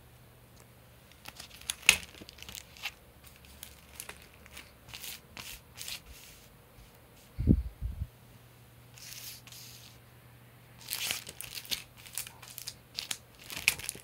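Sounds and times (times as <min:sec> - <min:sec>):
plastic files crinkling: 0:01.0 - 0:06.5, 0:10.8 - 0:14.0.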